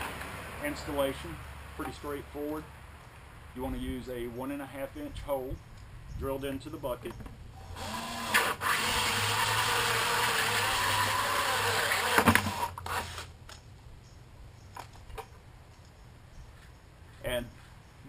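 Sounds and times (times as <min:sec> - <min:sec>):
drill hole saw cutting plastic: 0:07.6 - 0:13.3.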